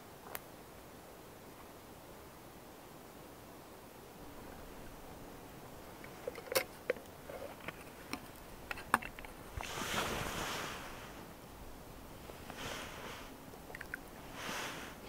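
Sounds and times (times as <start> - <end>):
rustling: 4.2 - 15.0.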